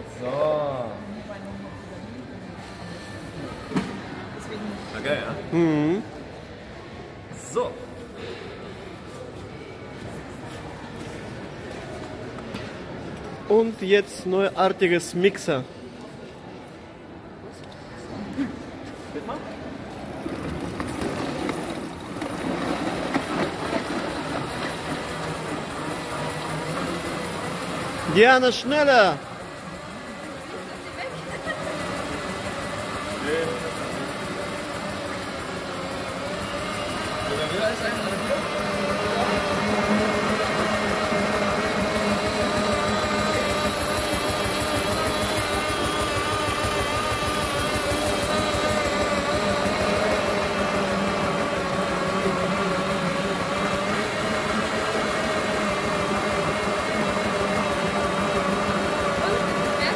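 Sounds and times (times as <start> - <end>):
blender blades whirring and rattling: 19.8 - 59.9.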